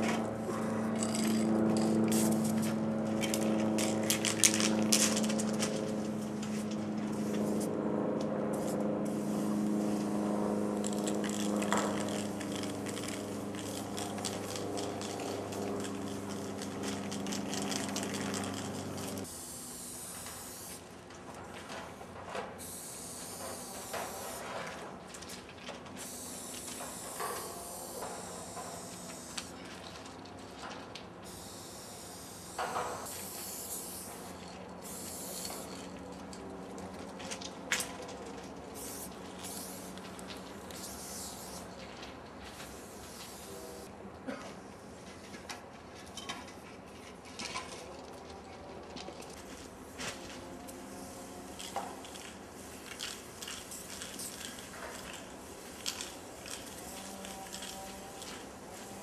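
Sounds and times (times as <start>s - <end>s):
spray paint cans hissing: 0.0s - 7.7s, 8.5s - 20.9s, 22.6s - 24.6s, 26.0s - 30.0s, 31.2s - 37.9s, 38.7s - 43.9s, 49.4s - 59.0s
steady low hum: 0.0s - 21.0s.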